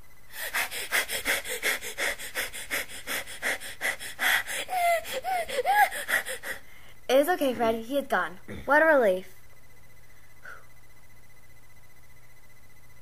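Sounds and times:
person panting rapidly: 0:00.3 - 0:06.8.

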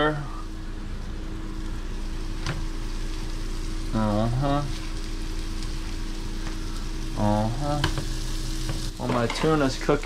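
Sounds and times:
fish frying in butter: 0:00.0 - 0:10.0
man humming: 0:03.9 - 0:04.8, 0:07.1 - 0:07.9.

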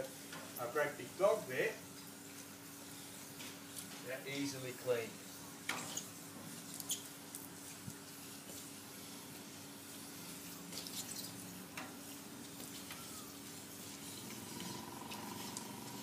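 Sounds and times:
water hissing from scrubbing brush: 0:04.1 - 0:16.0.

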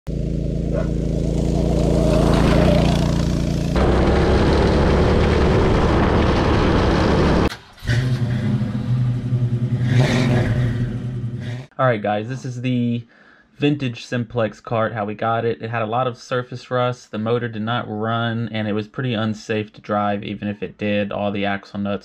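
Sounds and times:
go-kart engine running: 0:00.1 - 0:11.6
road noise: 0:00.1 - 0:11.7
steady drone: 0:00.4 - 0:07.5.

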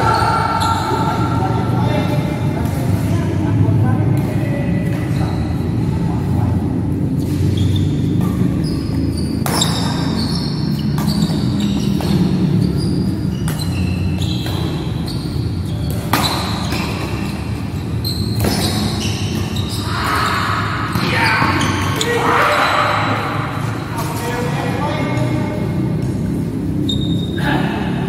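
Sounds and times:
shoes squeaking on floor: 0:00.0 - 0:02.2, 0:04.9 - 0:06.0, 0:06.7 - 0:27.4
rackets hitting shuttlecock: 0:07.2 - 0:17.6, 0:18.2 - 0:19.9.

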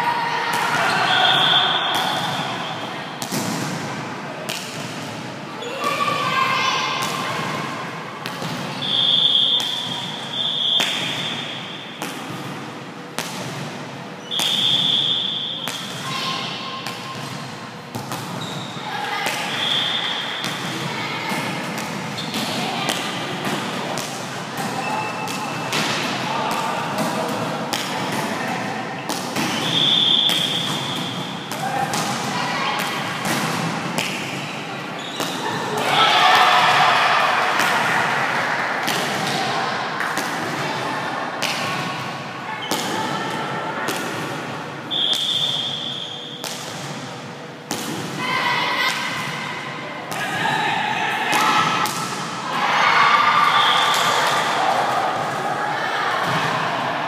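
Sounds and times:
players calling: 0:00.0 - 0:03.1, 0:08.8 - 0:12.0, 0:18.2 - 0:21.5, 0:52.4 - 0:55.6
players shouting calls: 0:00.0 - 0:03.2, 0:05.6 - 0:12.3, 0:14.2 - 0:17.2, 0:18.3 - 0:23.8, 0:24.6 - 0:33.7, 0:34.3 - 0:44.0, 0:44.8 - 0:46.4, 0:48.1 - 0:57.0
hands slapping volleyball: 0:03.2 - 0:05.2, 0:09.5 - 0:12.6, 0:13.2 - 0:16.0, 0:18.0 - 0:18.4, 0:19.2 - 0:24.7, 0:25.3 - 0:28.4, 0:29.1 - 0:34.4, 0:37.4 - 0:40.6, 0:41.4 - 0:41.9, 0:43.9 - 0:44.3, 0:46.4 - 0:47.0, 0:47.7 - 0:48.2
volleyball being struck: 0:08.2 - 0:16.0.

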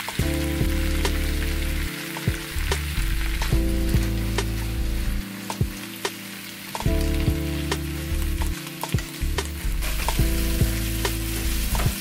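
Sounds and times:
food sizzling in a pan: 0:00.0 - 0:12.0.

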